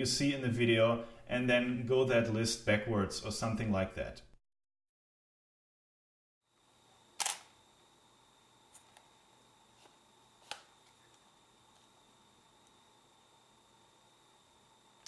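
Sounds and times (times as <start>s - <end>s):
camera shutter clacking: 7.2s - 7.5s.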